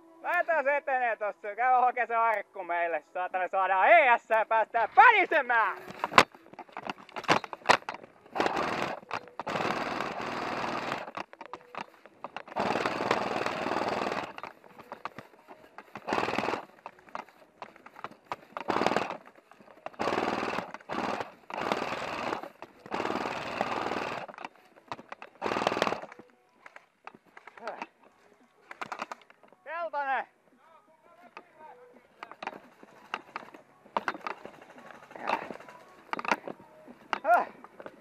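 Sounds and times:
airsoft gun firing bursts: 0:06.9 - 0:26.2, 0:32.3 - 0:36.6.

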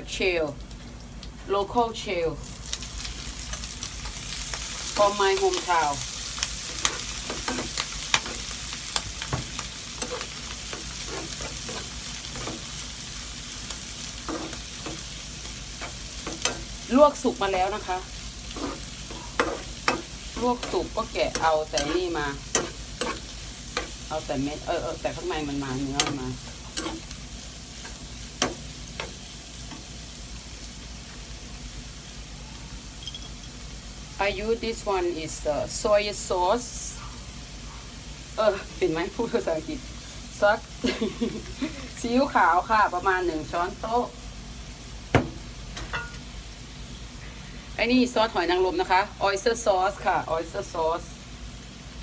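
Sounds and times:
clams sizzling in a pan: 0:02.0 - 0:52.0
metal spoon scraping a pan: 0:06.6 - 0:12.8, 0:14.1 - 0:16.8, 0:17.7 - 0:24.1, 0:25.4 - 0:27.2
metal spoon clinking against pan: 0:19.4 - 0:23.2.

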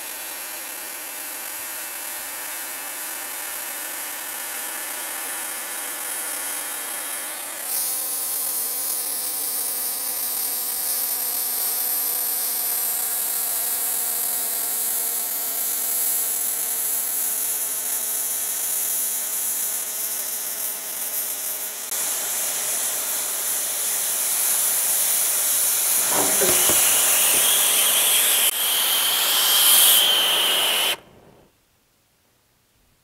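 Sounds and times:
cutting torch hissing: 0:20.3 - 0:31.4
thin whistle: 0:25.9 - 0:31.4.

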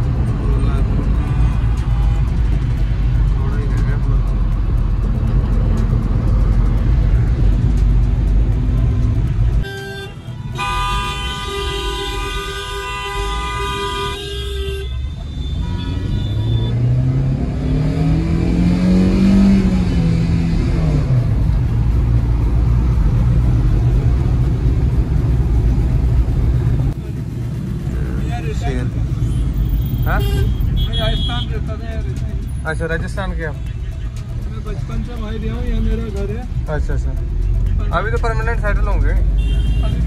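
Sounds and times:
road noise inside moving car: 0:00.0 - 0:40.0
vehicle horn: 0:09.6 - 0:16.8, 0:29.2 - 0:31.5, 0:39.4 - 0:40.0
engine rising and falling in pitch: 0:15.6 - 0:26.0.

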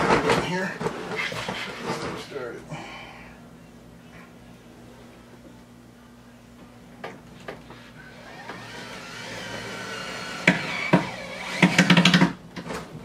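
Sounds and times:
electric screwdriver motor whine: 0:08.2 - 0:12.2.

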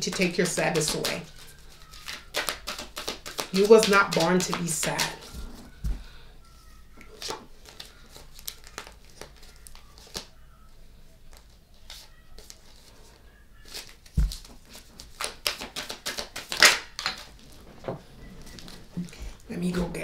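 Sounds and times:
rustling: 0:11.3 - 0:20.0.

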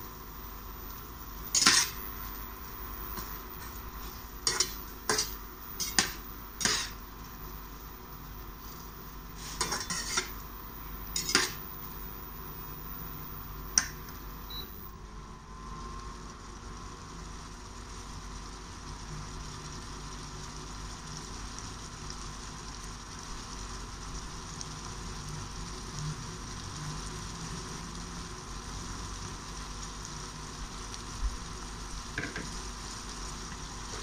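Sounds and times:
metal spatula scraping frying pan: 0:01.5 - 0:02.1, 0:03.2 - 0:07.0, 0:09.4 - 0:10.4, 0:11.1 - 0:11.6.

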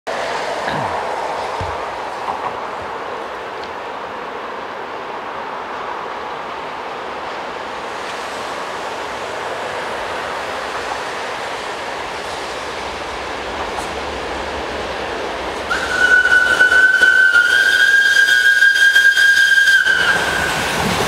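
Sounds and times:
steam locomotive running rumble: 0:06.1 - 0:21.0
steam whistle blowing: 0:15.7 - 0:20.8.

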